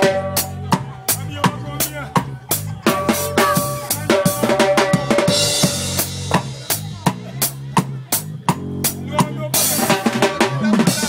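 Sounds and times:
live band playing: 0:00.0 - 0:11.0
drum kit hits: 0:02.2 - 0:11.0.

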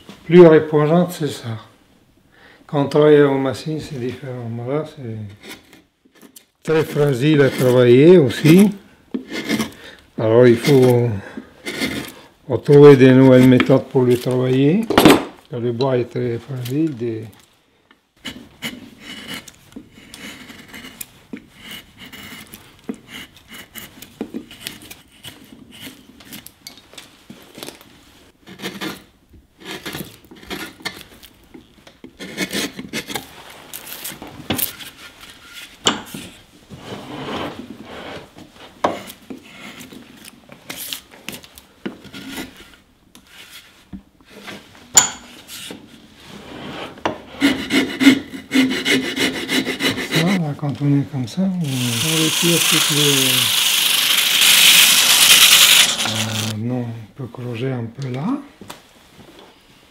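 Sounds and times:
carving tools scraping wood: 0:05.3 - 0:09.8, 0:10.5 - 0:12.2, 0:18.2 - 0:26.5, 0:28.4 - 0:31.4, 0:32.0 - 0:36.3, 0:38.6 - 0:41.0, 0:42.0 - 0:43.7, 0:47.3 - 0:50.4, 0:51.6 - 0:56.6.

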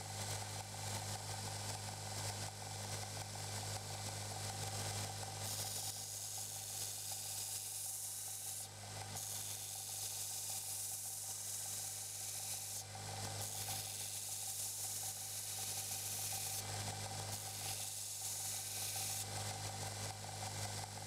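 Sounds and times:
belt grinder motor hum: 0:04.8 - 0:21.0
blade grinding hiss: 0:05.4 - 0:12.8, 0:13.4 - 0:16.6, 0:17.3 - 0:19.3.

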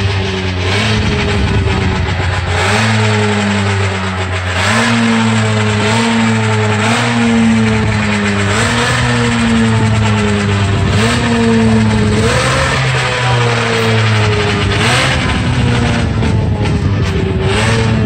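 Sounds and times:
engine running: 0:00.0 - 0:18.0.

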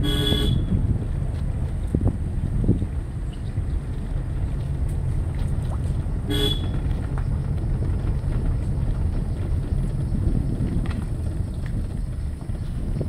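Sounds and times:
vehicle horn toot: 0:00.0 - 0:00.7, 0:06.3 - 0:06.8
steady low rumble: 0:00.0 - 0:13.0.

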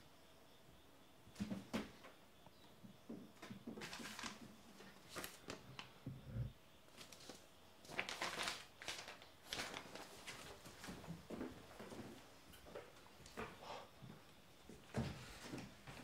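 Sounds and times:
paper rustling: 0:03.8 - 0:05.9, 0:06.9 - 0:11.1.

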